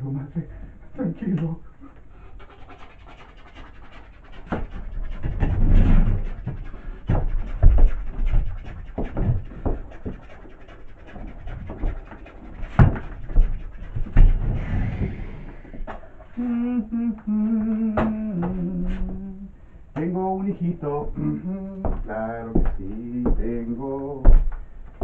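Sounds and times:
heavy panting breaths: 0.4s - 19.9s.

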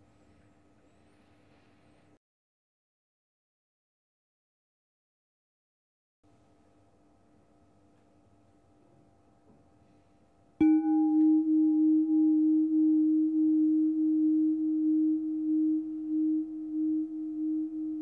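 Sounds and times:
singing bowl ringing: 10.6s - 18.0s.

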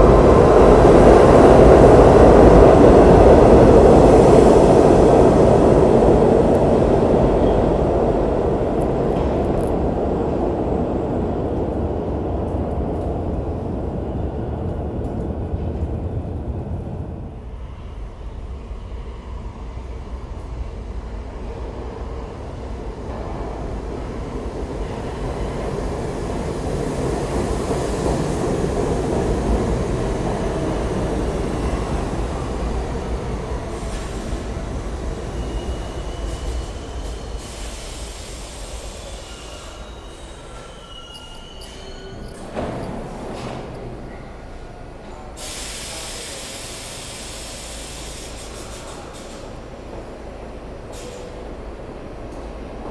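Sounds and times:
subway train rumble: 0.0s - 52.9s
train brake squeals: 35.3s - 43.2s, 50.9s - 51.4s.

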